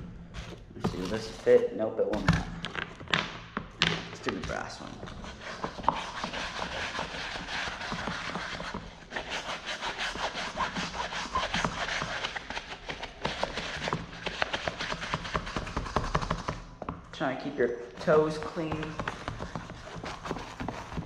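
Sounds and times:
brush scrubbing fabric shoe: 5.2s - 16.4s.

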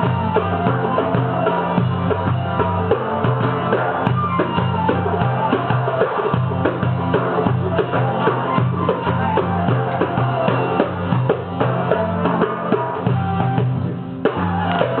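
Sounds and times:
frame drum and darbuka rhythm: 0.0s - 15.0s
plucked saz melody: 0.0s - 15.0s.

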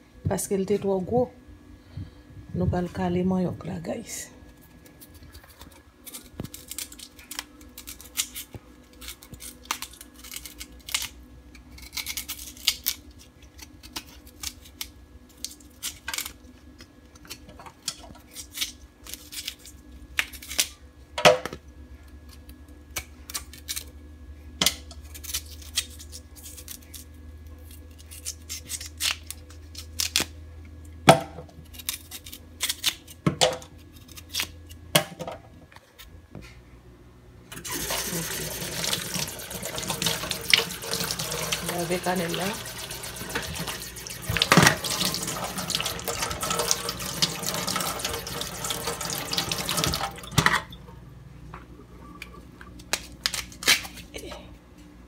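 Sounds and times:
steady low hum: 0.0s - 55.0s
knife scraping root skin: 25.0s - 30.2s, 31.6s - 33.2s.

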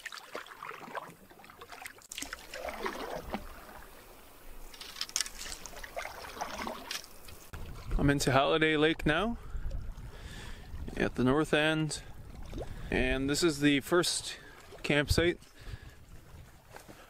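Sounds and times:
paddle strokes in water: 0.0s - 8.0s, 13.8s - 17.0s.

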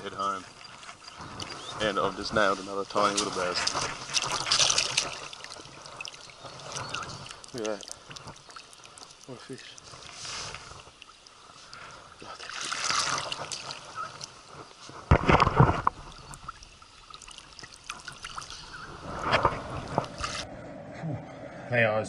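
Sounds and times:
river water trickling: 0.0s - 20.4s
loud water splash: 12.4s - 13.8s.

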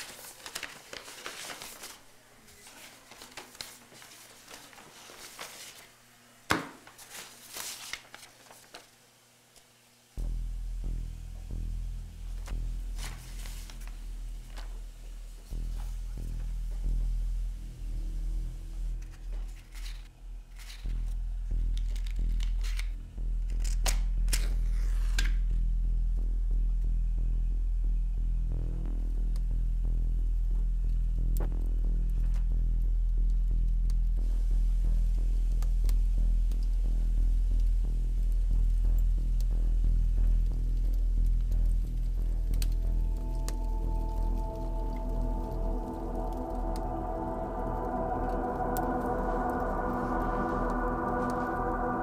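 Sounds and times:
paper envelope rustling: 0.0s - 6.0s, 6.8s - 9.0s
low steady hum: 0.0s - 52.0s
low music: 10.2s - 52.0s.

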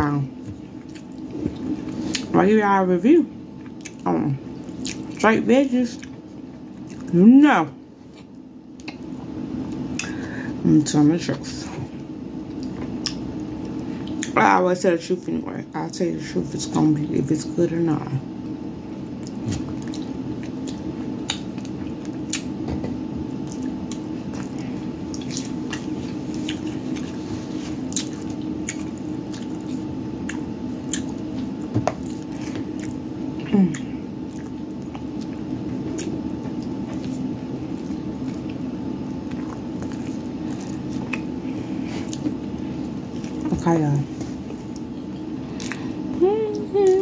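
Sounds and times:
low background hum: 0.0s - 47.0s
person chewing: 0.4s - 2.3s, 3.5s - 5.2s, 6.0s - 7.1s, 12.4s - 14.4s, 19.2s - 22.6s, 23.3s - 43.5s, 44.2s - 46.0s.

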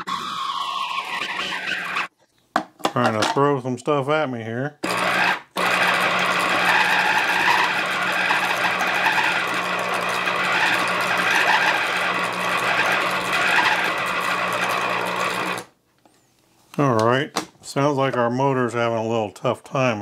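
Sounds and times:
food processor motor running: 0.9s - 2.1s, 4.8s - 15.7s.

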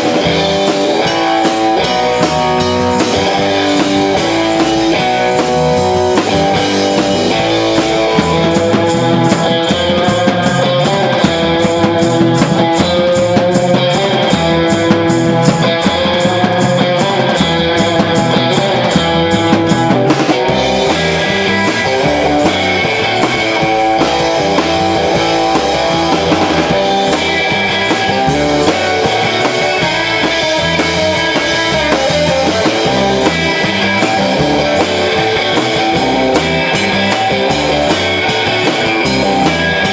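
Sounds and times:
drum kit: 0.0s - 39.9s
electric guitars: 0.0s - 39.9s
fast cymbal beat: 0.0s - 39.9s.

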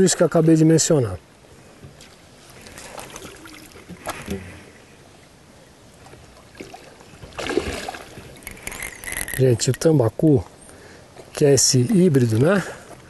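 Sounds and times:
fish splashing at water surface: 2.6s - 4.5s, 6.5s - 9.4s.

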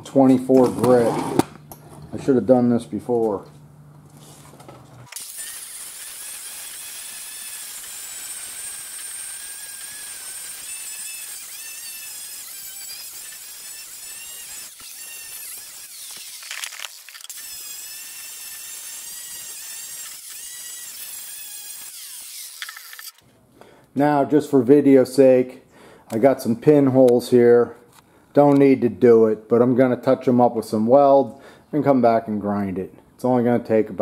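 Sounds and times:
angle grinder grinding steel: 5.1s - 23.2s.

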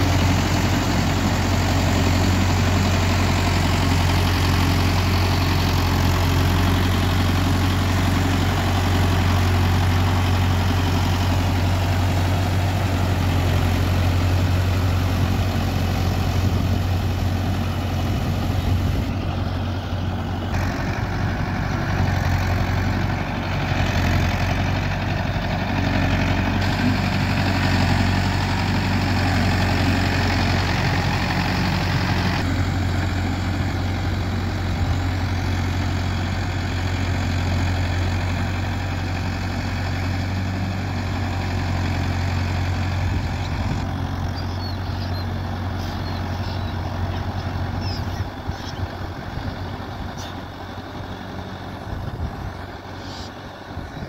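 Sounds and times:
tractor diesel engine droning: 0.0s - 54.0s.

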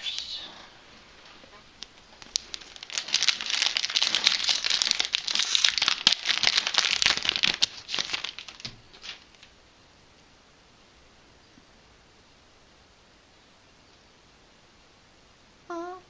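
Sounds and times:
foil wrapper crinkling: 1.8s - 9.5s.

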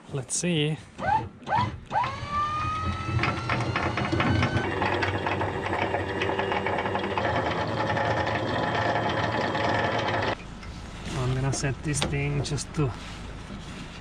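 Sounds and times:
windlass motor whining: 0.9s - 14.0s
anchor chain rattling: 3.0s - 10.4s.

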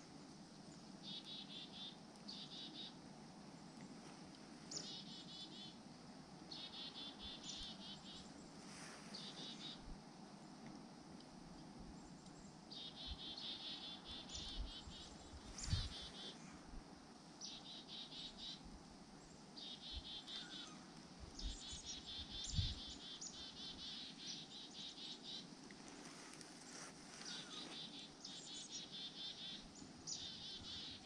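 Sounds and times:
small birds twittering trills: 4.7s - 5.8s, 6.5s - 10.6s, 12.0s - 16.4s, 19.2s - 25.5s, 26.7s - 31.0s.

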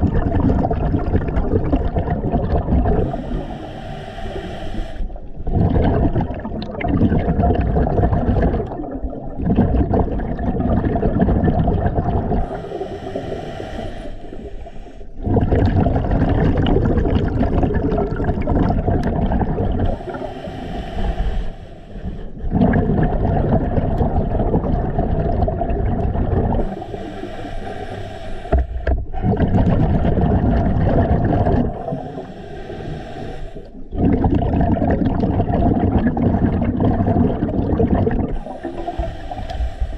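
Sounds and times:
diver breathing through regulator: 2.8s - 6.2s, 12.4s - 15.6s, 19.7s - 23.2s, 26.4s - 29.8s, 31.2s - 34.4s, 38.2s - 39.9s.

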